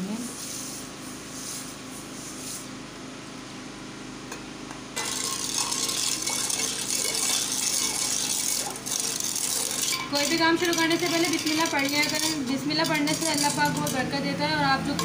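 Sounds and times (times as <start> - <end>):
low steady hum: 1.9 - 15.0
ladle clinking against pot: 4.3 - 14.1
liquid swishing: 5.0 - 12.4.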